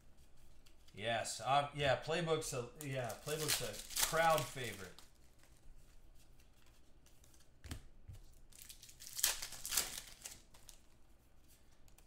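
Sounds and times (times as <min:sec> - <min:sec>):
foil wrapper tearing and crinkling: 0:02.8 - 0:05.2, 0:08.5 - 0:10.8.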